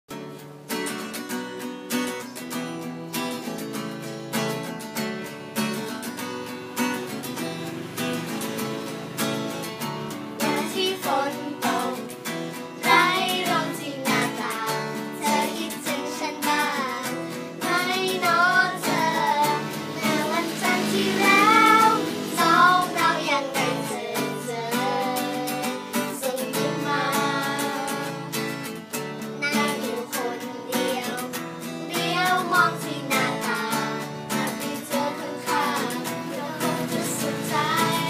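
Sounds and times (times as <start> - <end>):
strummed acoustic guitar: 0.1 - 38.0
girls singing together: 10.1 - 38.0.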